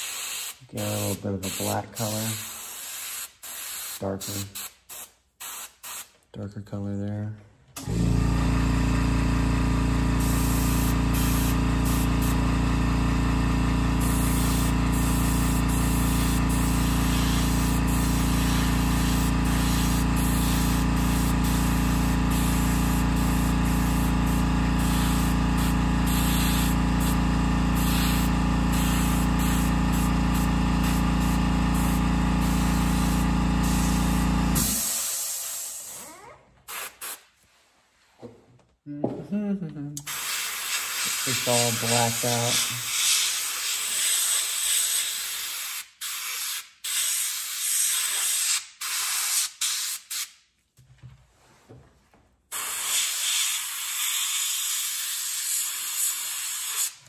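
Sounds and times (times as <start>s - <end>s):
airbrush spraying hiss: 0.0s - 6.2s, 10.2s - 12.4s, 14.0s - 27.2s, 27.8s - 36.0s, 36.7s - 37.3s, 40.1s - 50.3s, 52.6s - 56.9s
compressor motor humming: 7.8s - 35.2s.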